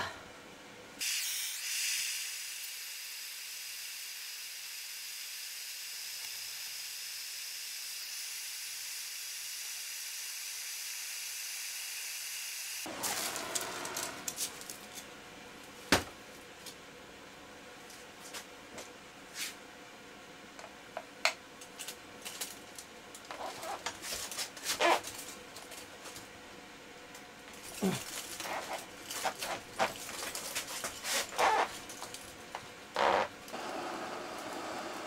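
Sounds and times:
heat gun hissing: 1.0s - 14.0s.

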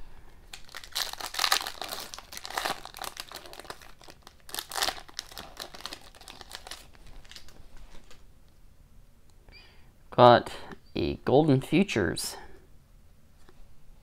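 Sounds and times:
foil wrapper crinkling and tearing: 0.5s - 8.2s.

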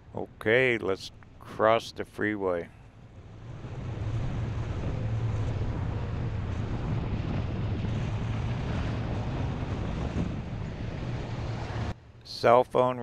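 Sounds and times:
vehicle engine and road drone: 0.0s - 13.0s
wind hiss: 2.9s - 12.0s.

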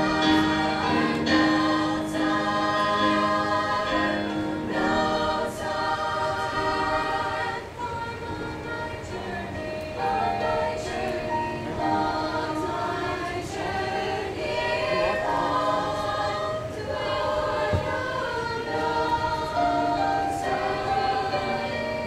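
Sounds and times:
women's choir singing: 0.0s - 22.0s.

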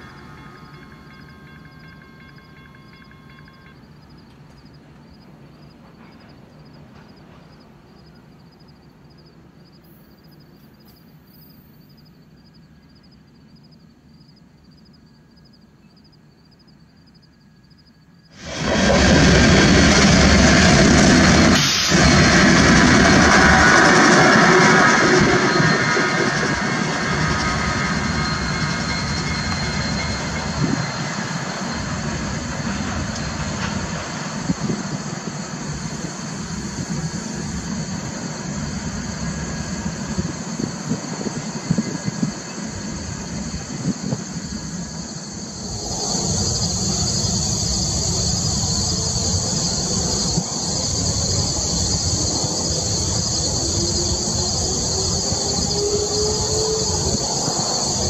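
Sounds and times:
insects chirping: 0.0s - 58.0s
rail noise: 0.0s - 58.0s
locomotive engine rumble: 18.4s - 58.0s.

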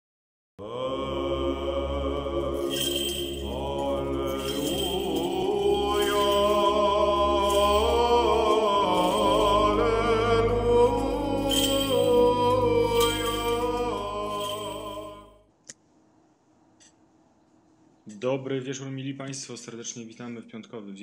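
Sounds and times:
chant-like sustained singing: 0.6s - 15.4s
low drone: 0.6s - 15.4s.

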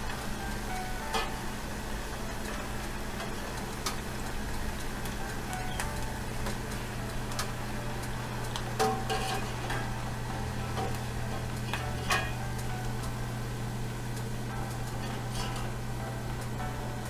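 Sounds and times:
fries sizzling in hot oil: 0.0s - 17.0s
metal skimmer scraping pan: 8.8s - 10.0s, 10.7s - 12.4s, 15.0s - 15.8s.

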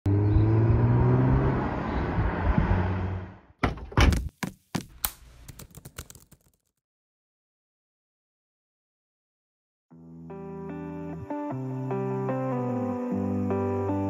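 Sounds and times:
car door shutting: 3.6s - 4.4s.

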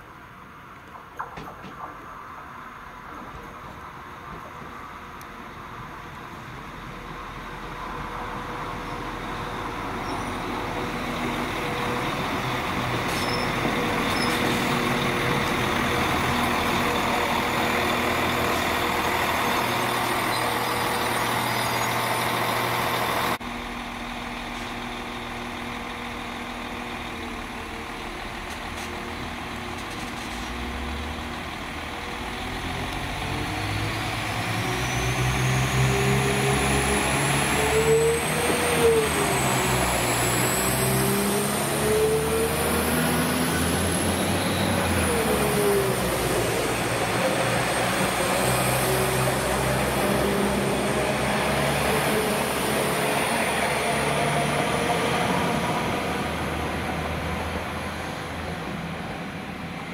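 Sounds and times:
diesel engines idling: 1.8s - 59.9s
train braking: 9.8s - 23.4s
engines revving with rising whine: 32.2s - 58.6s.

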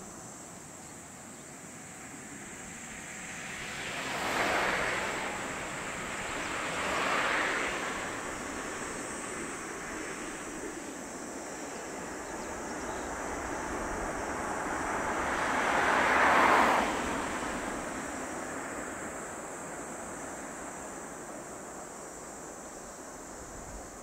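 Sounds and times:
insects buzzing: 0.0s - 24.0s
distant jet engine roar: 2.0s - 24.0s.

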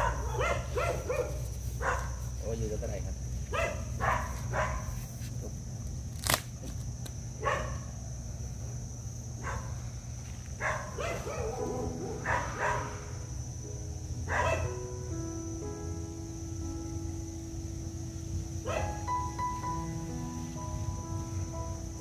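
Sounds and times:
dog barking: 0.0s - 2.2s, 3.5s - 5.0s, 7.4s - 7.9s, 9.4s - 9.8s, 10.6s - 13.1s, 14.3s - 14.7s, 18.6s - 19.0s.

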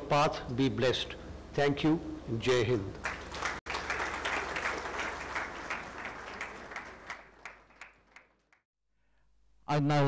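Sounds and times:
audience applause: 3.0s - 8.6s.

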